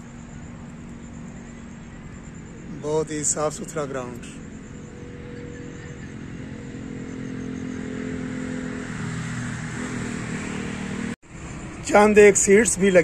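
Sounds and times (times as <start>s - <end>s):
motor engine running: 0.0s - 11.7s.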